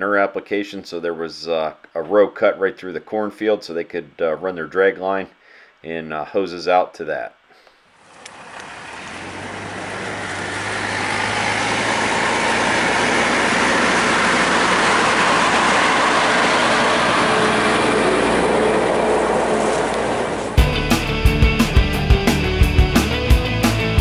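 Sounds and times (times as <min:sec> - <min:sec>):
truck rolling over dirt: 0:08.0 - 0:20.6
truck engine: 0:08.0 - 0:24.0.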